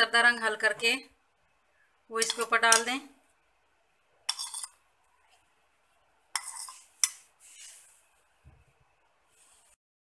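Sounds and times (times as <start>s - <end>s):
metal spoon scraping bowl: 2.2s - 2.9s, 4.3s - 4.8s, 6.3s - 7.9s.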